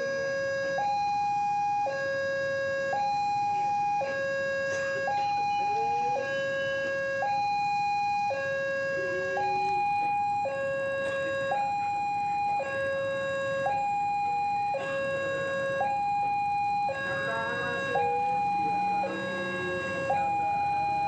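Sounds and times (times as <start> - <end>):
level crossing two-tone alarm: 0.0 - 21.0.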